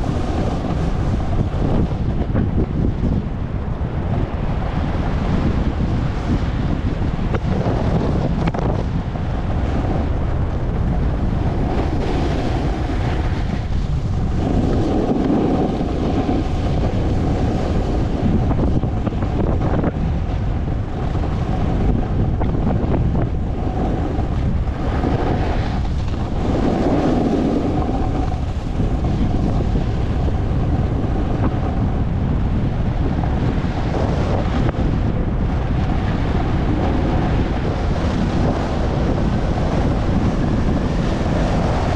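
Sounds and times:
skis sliding over snow: 0:00.0 - 0:03.1, 0:03.8 - 0:41.9
wind buffeting microphone: 0:00.0 - 0:41.9.

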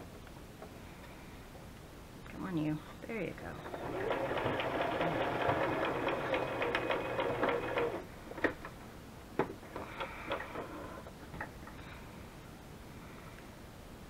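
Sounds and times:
sewing machine stitching: 0:03.6 - 0:08.5.

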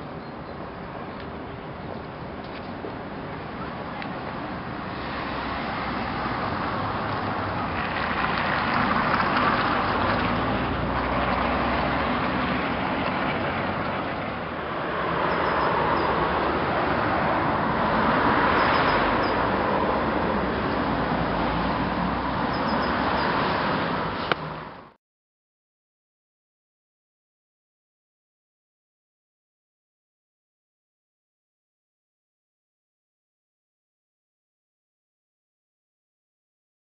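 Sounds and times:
road traffic passing: 0:00.0 - 0:25.0.

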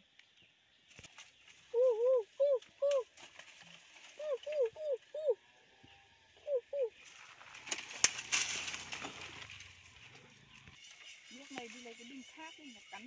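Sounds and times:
dry leaves and twigs crackling: 0:00.1 - 0:06.0, 0:06.9 - 0:13.0
bird calling: 0:01.7 - 0:03.1, 0:04.1 - 0:07.1.

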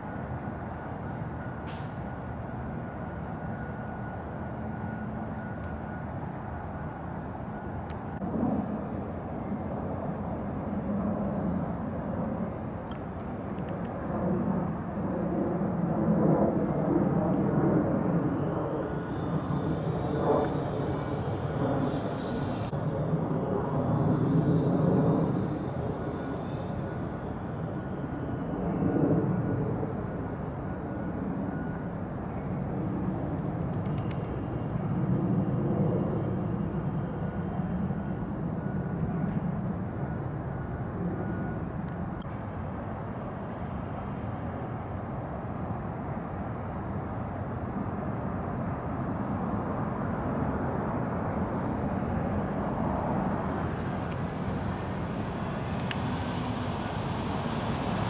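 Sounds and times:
low outdoor background rumble: 0:00.0 - 0:58.0
distant engine rumble: 0:49.6 - 0:58.0.

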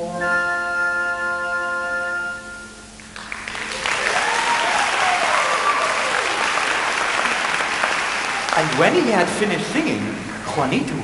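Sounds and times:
audience applause: 0:03.0 - 0:10.8.

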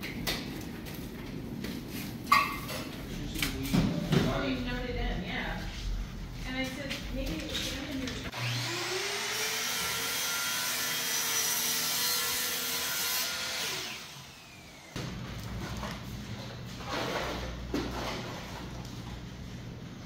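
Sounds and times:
power tool motor whining: 0:08.3 - 0:15.0.

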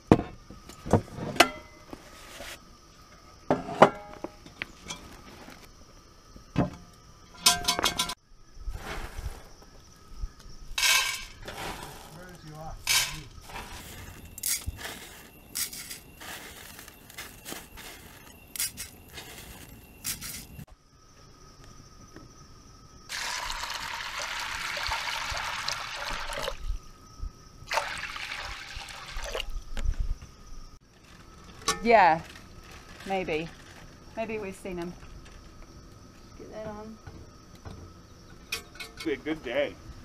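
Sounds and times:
water pouring over beans: 0:23.1 - 0:26.7, 0:27.7 - 0:29.5.

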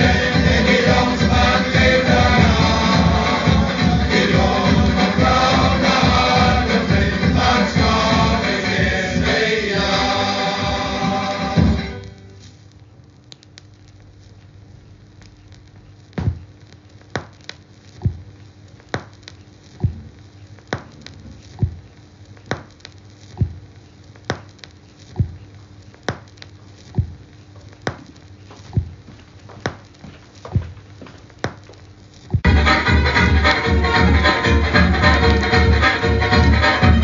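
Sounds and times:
record surface noise: 0:00.0 - 0:37.0
record clicks: 0:12.4 - 0:32.5.

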